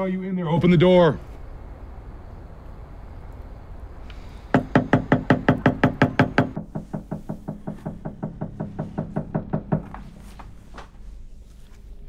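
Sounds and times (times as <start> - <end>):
fist pounding on door: 4.5 - 10.2.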